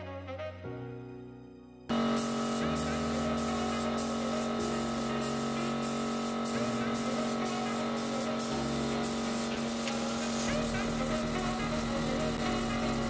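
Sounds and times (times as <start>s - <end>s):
background music: 0.0s - 1.9s
air spray gun hissing: 1.9s - 13.0s.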